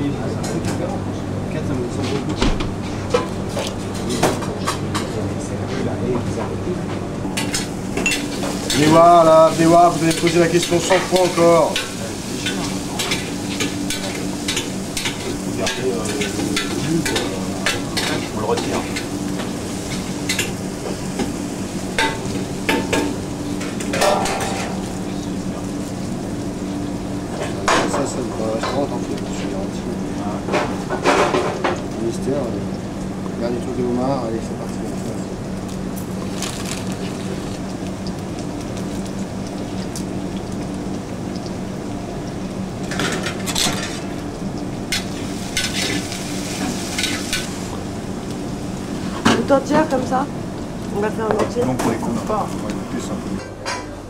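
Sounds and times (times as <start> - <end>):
steady low hum: 0.0 - 54.0
utensils and pans knocking: 23.9 - 24.8
crinkly hiss bursts: 35.7 - 40.2.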